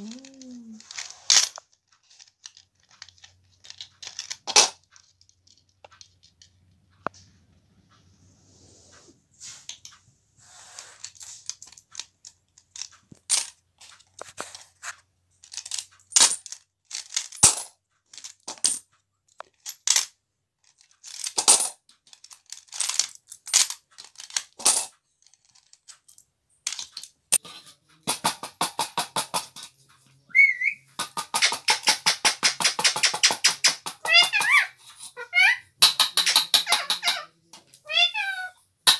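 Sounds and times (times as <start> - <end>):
coins clinking against metal tins: 13.3 - 13.6, 15.5 - 18.8, 21.0 - 21.8, 22.5 - 25.0
short wavering whistles: 30.3 - 30.8.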